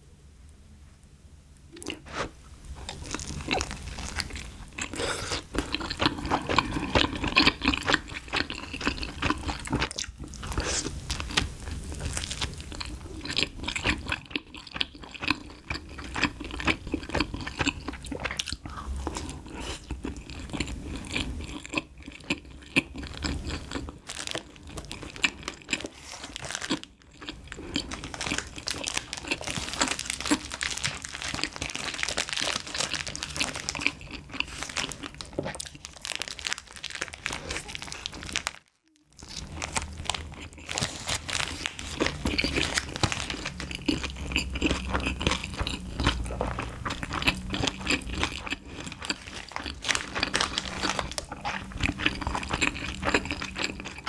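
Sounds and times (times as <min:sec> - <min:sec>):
chewing and crunching: 0:01.7 - 0:54.0
plastic wrapper rustling: 0:02.8 - 0:04.8, 0:23.6 - 0:44.2, 0:47.7 - 0:53.5.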